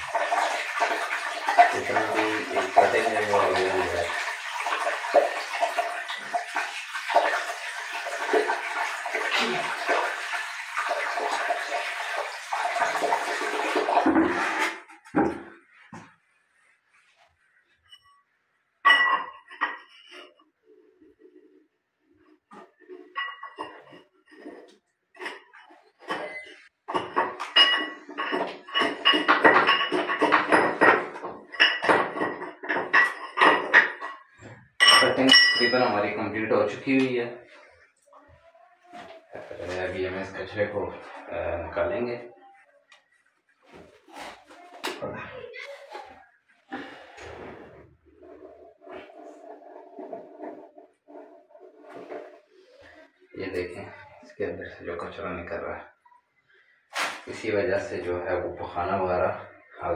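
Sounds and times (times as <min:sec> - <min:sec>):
water pouring into toilet bowl: 0:00.0 - 0:15.5, 0:46.7 - 0:55.6.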